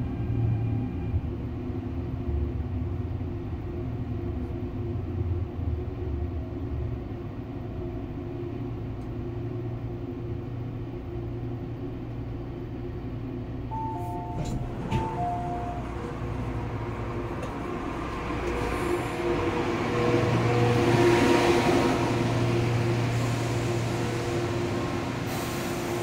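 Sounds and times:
train rumble and hum: 0:00.0 - 0:26.0
two-note falling chime: 0:13.7 - 0:15.9.

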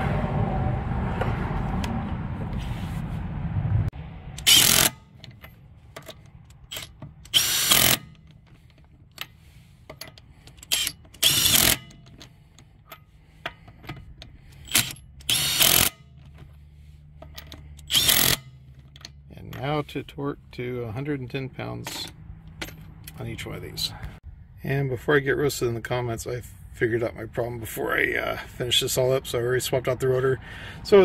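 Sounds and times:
low rumbling noise: 0:00.0 - 0:09.8
impact wrench spinning lug nuts: 0:04.4 - 0:19.7.

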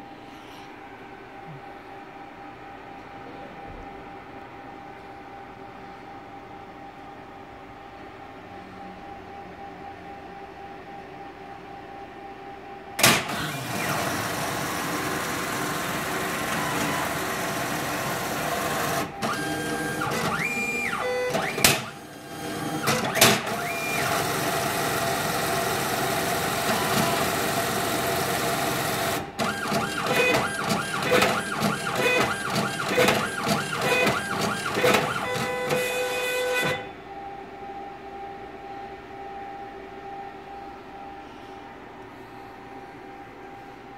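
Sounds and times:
cash dispenser whirring: 0:13.0 - 0:36.9.

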